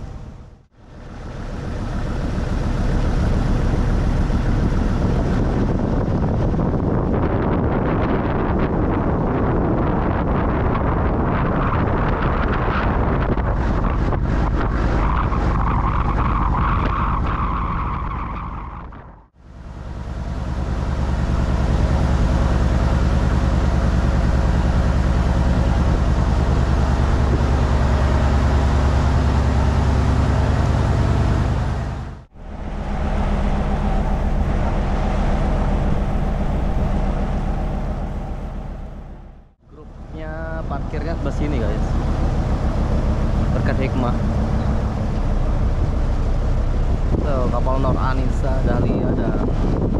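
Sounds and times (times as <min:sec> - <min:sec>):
wind buffeting microphone: 0:00.0 - 0:19.3, 0:20.0 - 0:49.9
boat engine running: 0:00.0 - 0:49.9
water rushing past hull: 0:19.3 - 0:49.9.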